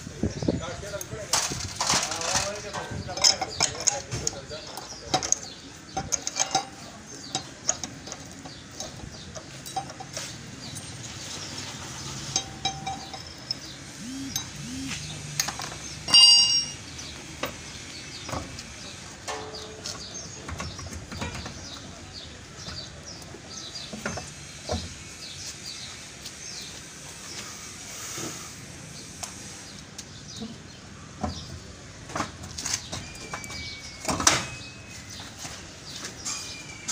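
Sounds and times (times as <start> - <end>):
birds chirping: 0.0 - 36.9
steel tools clinking on metal: 1.3 - 11.0, 12.2 - 14.8, 15.4 - 16.9
loud ringing metal clang: 16.1 - 16.8.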